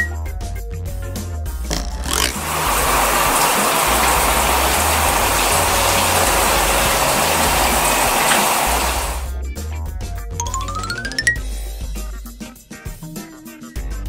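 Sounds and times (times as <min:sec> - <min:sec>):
water spraying from shower head: 0:01.7 - 0:09.3.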